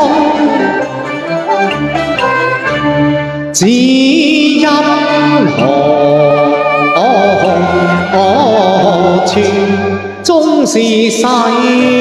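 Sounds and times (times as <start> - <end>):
man singing opera: 0.0 - 0.9, 3.5 - 12.0
instrumental accompaniment: 0.0 - 12.0.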